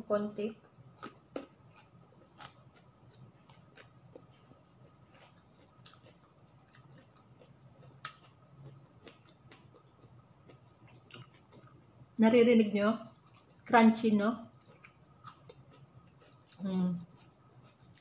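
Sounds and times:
crunchy chewing: 1.0 - 11.9, 13.1 - 13.7, 14.5 - 18.0.

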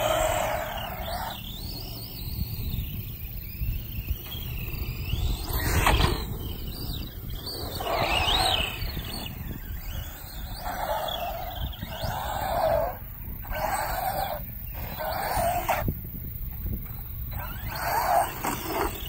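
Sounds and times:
electric motor and gears whining: 0.0 - 19.0.

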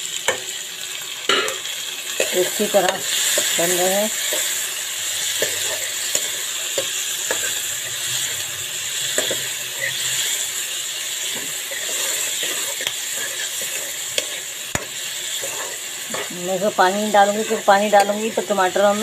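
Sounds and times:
onions and tomatoes sizzling: 0.0 - 19.0
ladle scraping a pan: 11.2 - 16.3.

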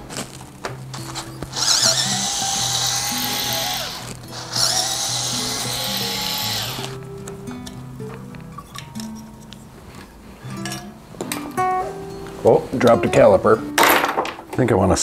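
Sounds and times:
electric screwdriver running: 1.0 - 7.0.

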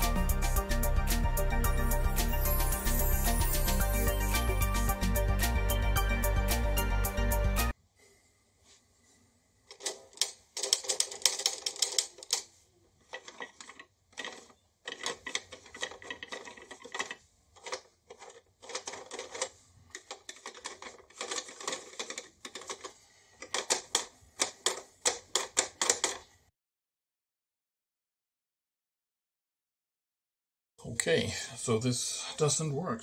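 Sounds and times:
plastic toy mechanism clicking: 9.7 - 26.3.

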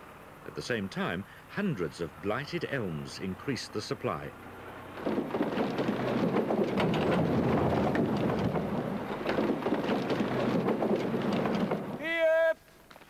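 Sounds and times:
logs clattering off a trailer: 4.6 - 12.2.

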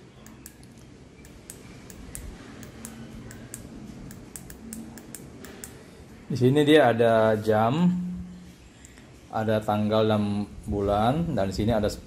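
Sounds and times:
light sharp clicks: 0.2 - 5.8.

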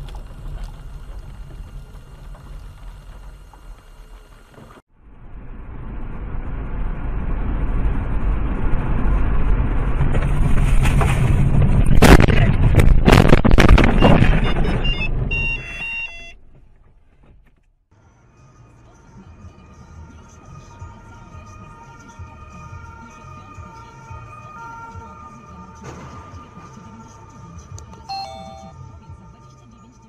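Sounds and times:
road and wind noise: 0.0 - 28.1
electronic beeps: 28.0 - 28.8.

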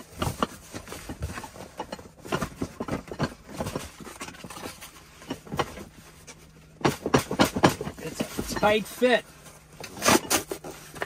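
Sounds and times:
cardboard boxes knocking and scraping: 0.0 - 6.0, 6.8 - 9.1.

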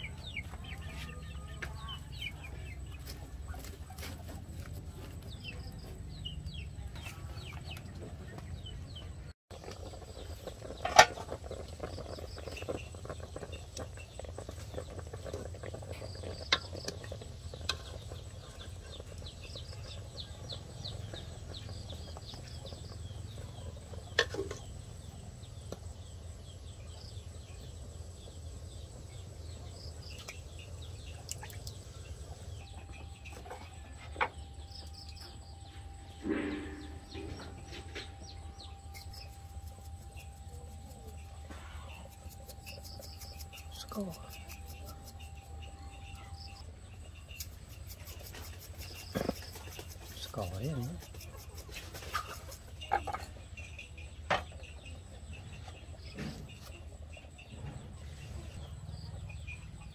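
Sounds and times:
chickens clucking: 0.0 - 6.0, 47.2 - 58.6
small birds calling: 0.0 - 59.9
metal scraping: 32.6 - 46.6.

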